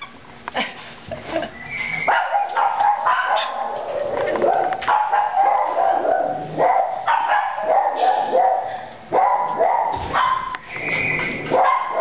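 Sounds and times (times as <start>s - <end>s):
puppy yapping and barking: 1.9s - 8.6s, 9.2s - 12.0s.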